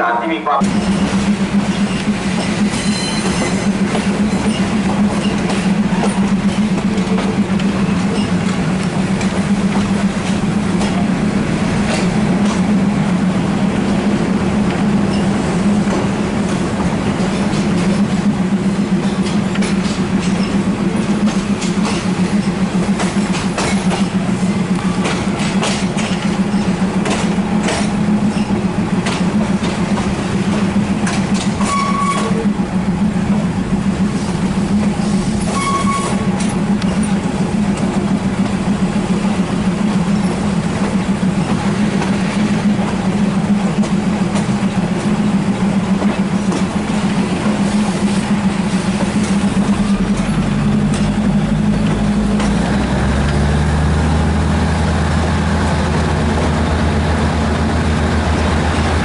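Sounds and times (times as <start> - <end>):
diesel train engine drone: 0.0 - 59.0
wheels clicking over rail joints: 19.0 - 32.5, 48.8 - 53.8.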